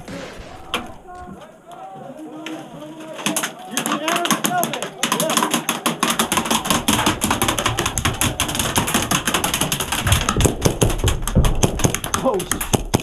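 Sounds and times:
airsoft guns firing: 0.0s - 1.3s, 3.1s - 13.0s
dull thumps: 4.2s - 13.0s.

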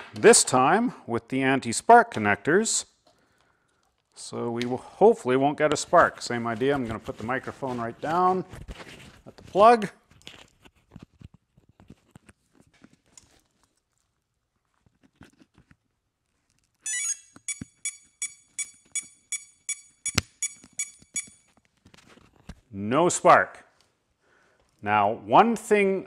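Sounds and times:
short electronic beeps: 16.9s - 21.5s.

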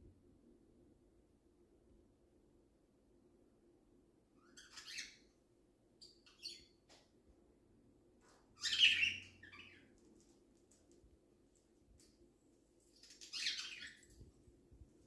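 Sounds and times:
cockatiel chirping: 4.4s - 5.3s, 6.0s - 6.7s, 8.6s - 9.8s, 13.0s - 14.1s.

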